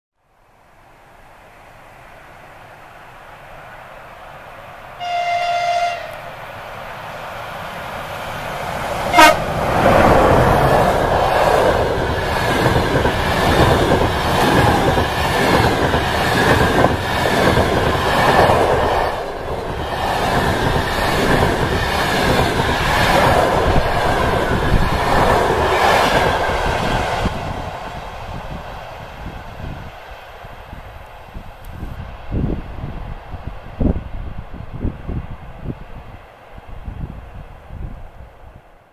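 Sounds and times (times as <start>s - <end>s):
train wheels clattering over rails: 8.6s - 29.2s.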